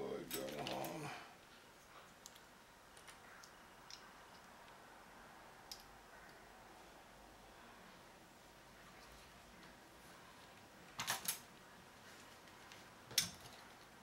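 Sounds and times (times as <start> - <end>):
faint clicks of handling wire: 0.2 - 4.8, 5.7 - 6.4.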